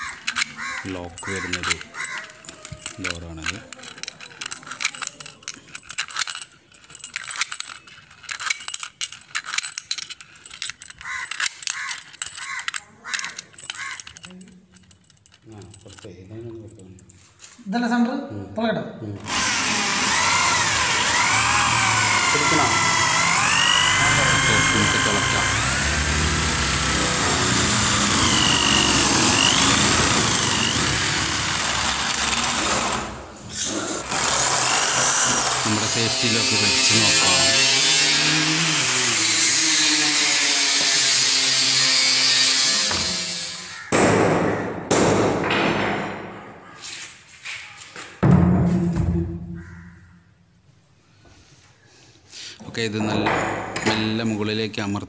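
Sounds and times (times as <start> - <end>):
key turning in metal lock: 0.0 - 16.9
electric drill boring into wood: 19.2 - 43.9.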